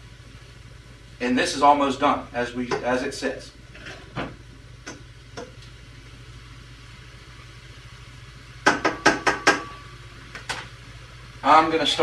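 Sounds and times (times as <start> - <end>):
spatula knocking in frying pan: 8.6 - 9.8.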